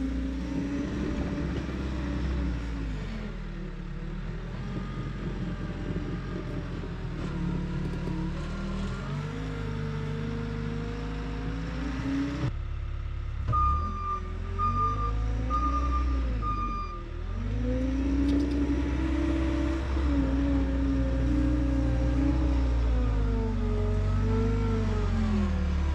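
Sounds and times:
backup alarm beeping: 13.5s - 17.0s.

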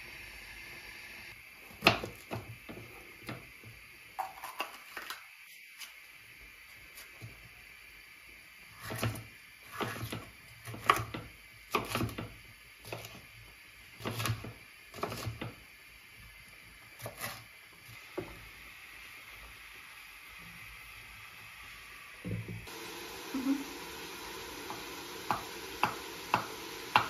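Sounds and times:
knife slicing pepper: 8.8s - 12.2s, 13.9s - 15.5s, 16.9s - 17.5s.

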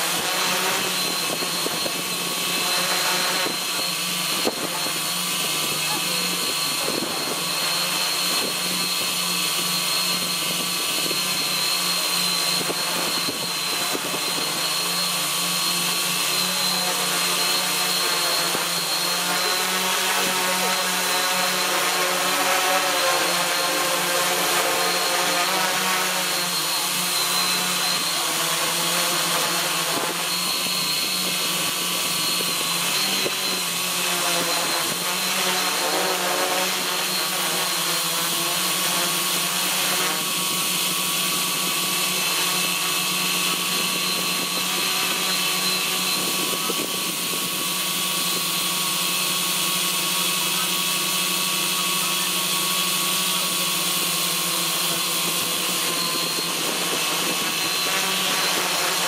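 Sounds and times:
drone motors and propellers whining: 0.0s - 59.0s.

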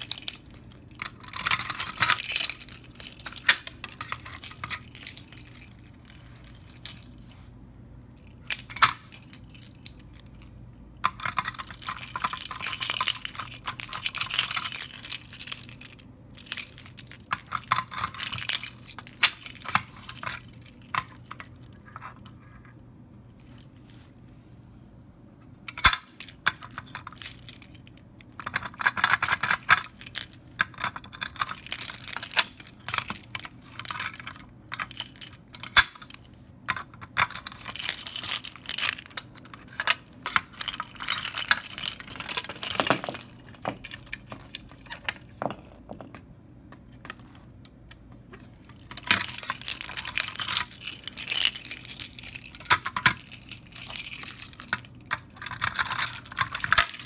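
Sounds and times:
plastic housing clicks and rattles: 0.0s - 5.8s, 25.7s - 57.0s
keys jangling: 0.0s - 7.2s, 11.1s - 22.7s, 25.7s - 45.3s, 48.7s - 57.0s.

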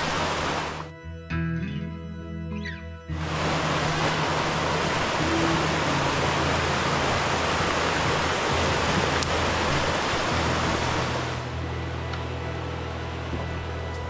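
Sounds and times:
creek rushing over rocks: 0.0s - 0.9s, 3.2s - 11.6s.

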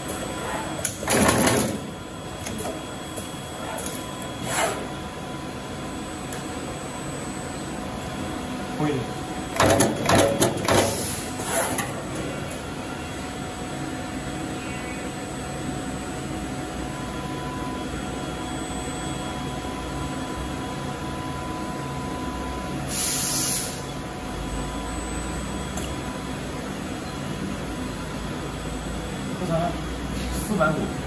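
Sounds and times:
crimping machine clacks: 9.6s - 10.9s.

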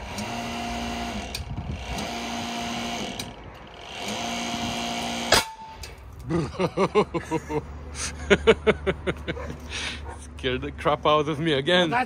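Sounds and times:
hydraulic pump running: 0.0s - 6.0s
loud bang with metallic ring: 5.3s - 5.8s.

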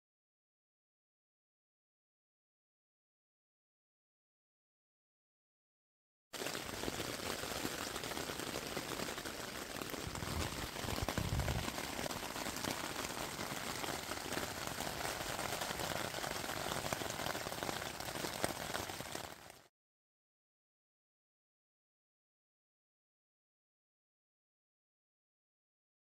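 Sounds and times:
rain pattering on tent: 6.4s - 19.7s.

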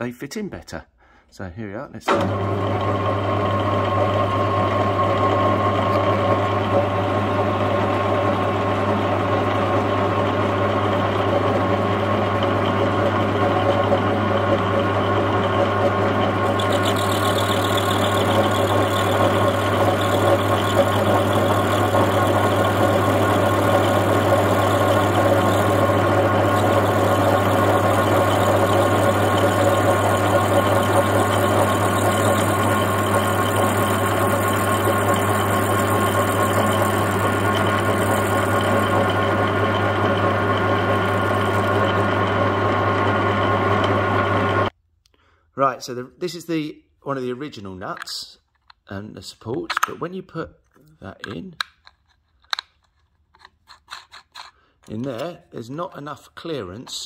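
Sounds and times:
metal lathe running: 2.1s - 44.7s.

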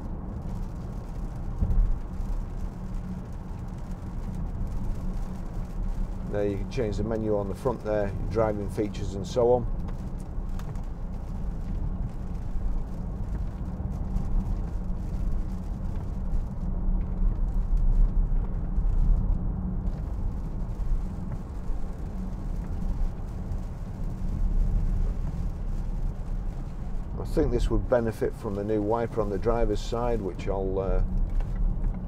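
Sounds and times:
car cabin low rumble: 0.0s - 32.0s.

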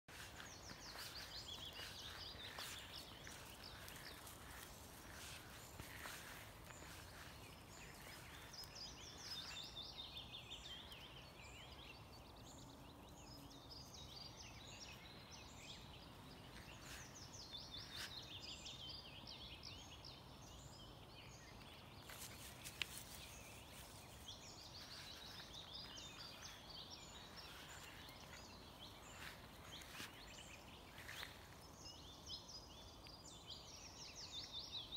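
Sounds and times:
songbird singing: 0.0s - 34.9s
small bird chirps: 0.1s - 12.1s
faint outdoor hiss: 0.1s - 34.9s.

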